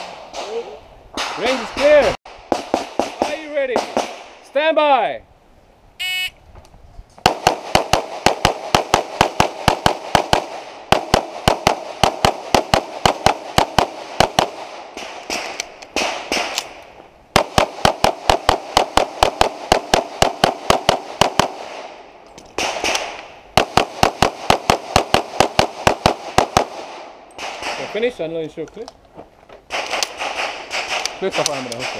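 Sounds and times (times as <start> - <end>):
rapid pistol fire: 1.2 - 4.3, 7.2 - 16.6, 17.4 - 21.9, 22.6 - 28.0, 29.7 - 31.9.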